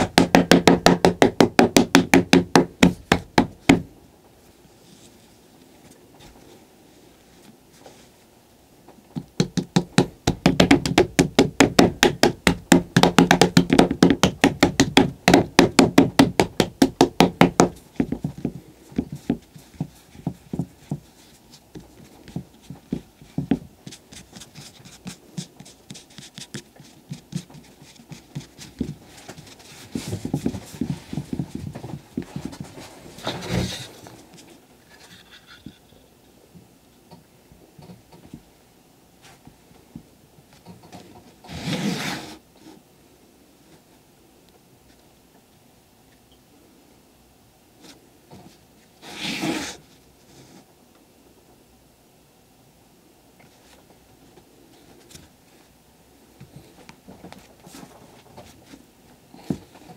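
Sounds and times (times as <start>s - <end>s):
clay thump: 0.0s - 3.9s, 9.1s - 33.8s
fingertips patting soft clay: 0.0s - 3.9s, 9.1s - 32.8s.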